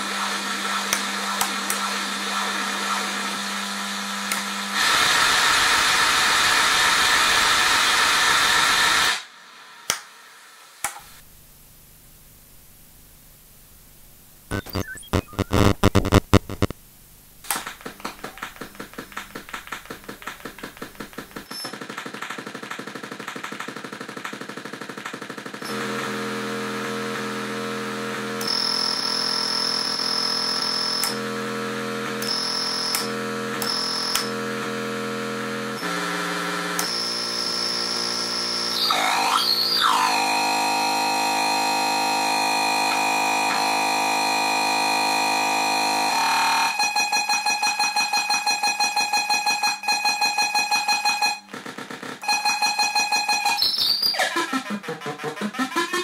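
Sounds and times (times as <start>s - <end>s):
fast pulsing throb: 14.5s - 16.7s
buzzy electronic tones: 14.5s - 16.8s.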